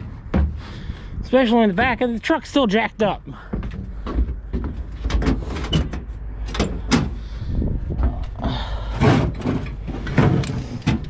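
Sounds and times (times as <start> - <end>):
low rumble: 6.0 - 10.9
metal toolbox opening: 8.9 - 11.0.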